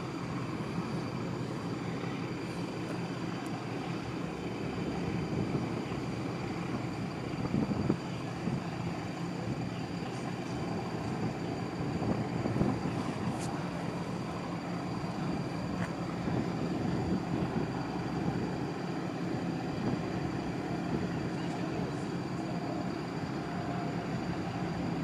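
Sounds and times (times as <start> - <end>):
distant engines rumbling: 0.0 - 25.0
faint high-pitched tones: 21.1 - 25.0.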